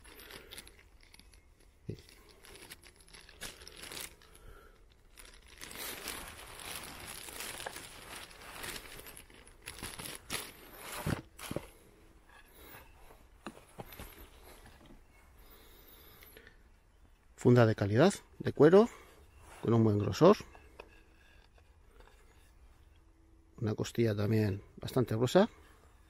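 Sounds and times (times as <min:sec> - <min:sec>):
paper wrapping crinkling: 0:00.0 - 0:11.6.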